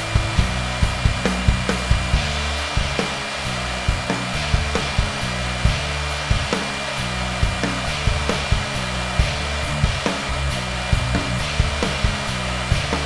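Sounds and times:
background music with drum beat: 0.0s - 13.0s
engraving spindle whine: 0.0s - 13.0s.

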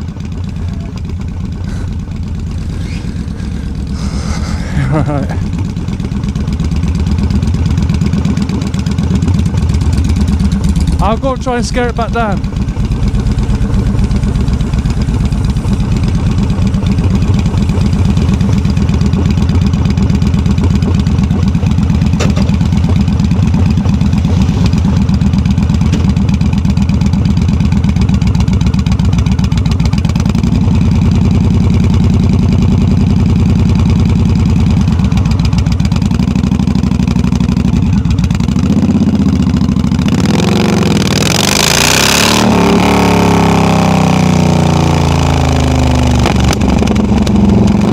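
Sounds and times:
motorcycle exhaust roar: 0.0s - 47.9s.

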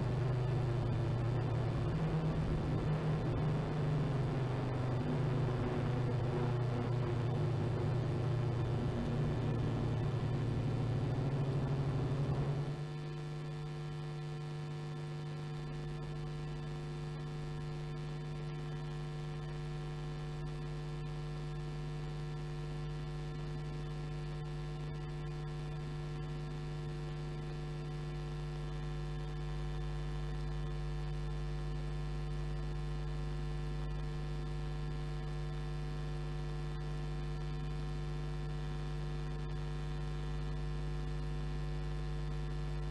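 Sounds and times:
race car engines: 0.0s - 12.8s
electrical mains hum: 0.0s - 42.9s.

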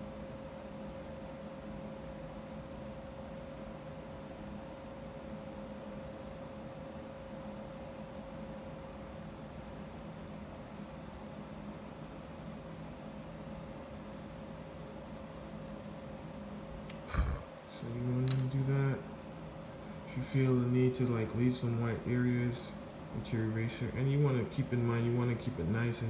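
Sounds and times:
steady hum: 0.0s - 26.0s
pencil shading on paper: 9.5s - 15.9s.

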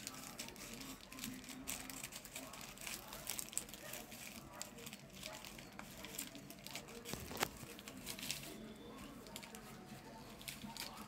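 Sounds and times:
plastic bag crinkling: 0.0s - 11.0s.

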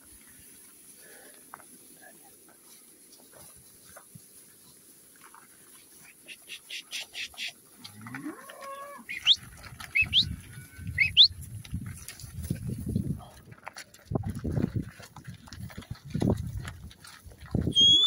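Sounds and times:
cow mooing: 7.8s - 9.2s.

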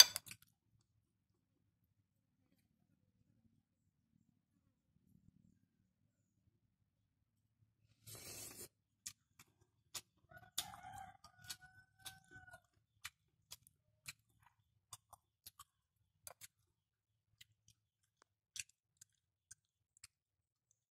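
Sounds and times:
spoon clicks and chewing: 9.0s - 16.7s, 17.4s - 20.9s
rooster crowing: 10.3s - 12.7s.

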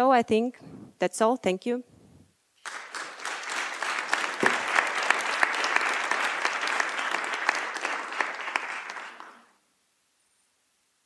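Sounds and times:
audience applauding: 2.6s - 9.5s.

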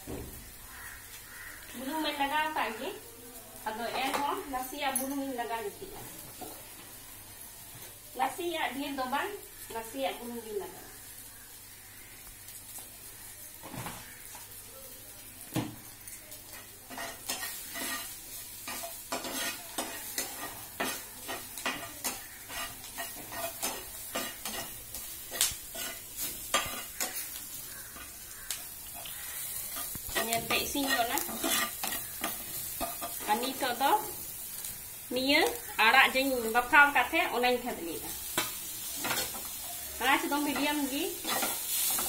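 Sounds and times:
garlic sizzling in hot oil: 0.0s - 42.0s
spatula scraping a pan: 16.5s - 34.7s, 38.2s - 42.0s.

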